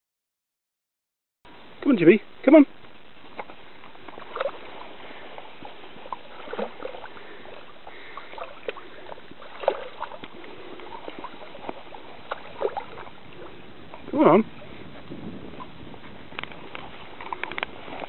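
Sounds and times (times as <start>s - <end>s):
faint steady hiss: 1.5s - 18.0s
dog splashing in water: 3.3s - 14.2s.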